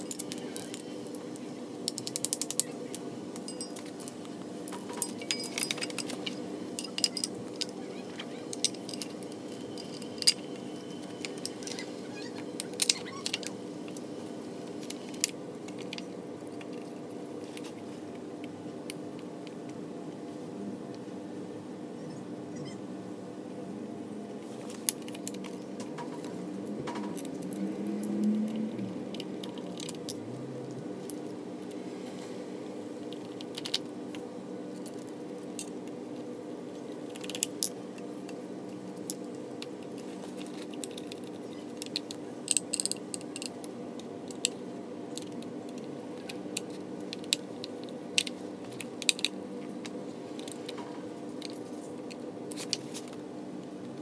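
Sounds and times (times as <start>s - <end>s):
steady low hum: 0.0s - 54.0s
metal tools clicking and clinking: 3.4s - 7.8s, 8.5s - 11.9s.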